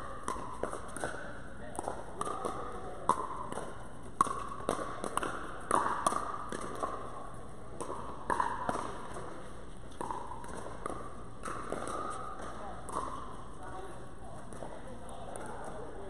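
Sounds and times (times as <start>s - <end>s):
paddles striking plastic ball: 0.2s - 7.1s.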